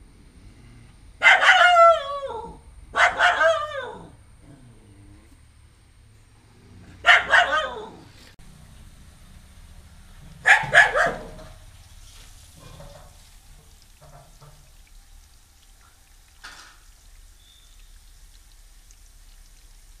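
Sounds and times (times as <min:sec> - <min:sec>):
dog barking: 0:01.2 - 0:04.6, 0:06.8 - 0:08.2, 0:10.4 - 0:11.6.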